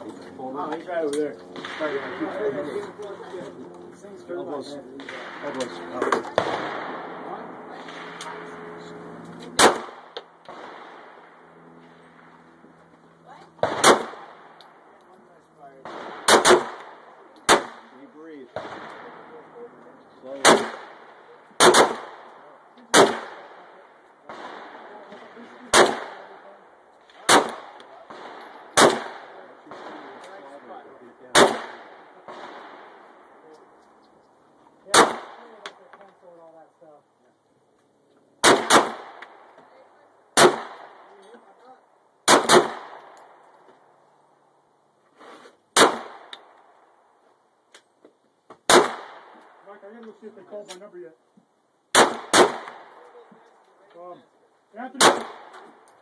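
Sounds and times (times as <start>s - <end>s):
pistol shots with echo: 1.5s - 2.8s, 5.0s - 12.3s, 13.6s - 14.9s, 15.8s - 19.6s, 20.3s - 33.4s, 34.9s - 35.8s, 38.4s - 39.6s, 40.3s - 41.2s, 42.2s - 43.4s, 45.7s - 46.7s, 48.7s - 49.6s, 51.9s - 53.2s, 54.9s - 56.0s
faint gunshot report: 9.4s - 11.0s, 31.3s - 32.9s, 55.0s - 55.6s.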